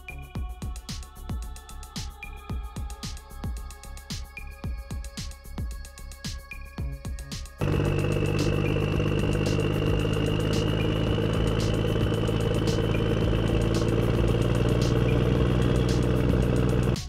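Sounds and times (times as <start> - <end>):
high whine: 7.6 - 17.0
tractor engine under load: 7.6 - 17.0.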